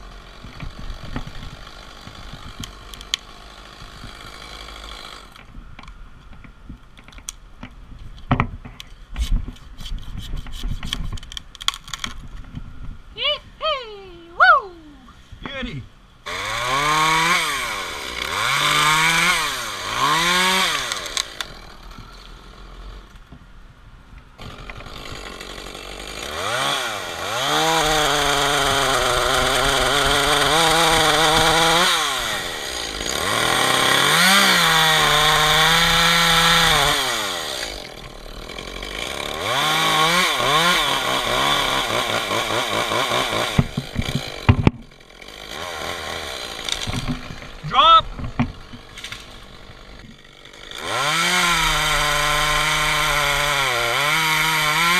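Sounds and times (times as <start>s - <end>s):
chainsaw cutting wood: 0.0s - 5.5s, 16.2s - 23.2s, 24.4s - 54.9s.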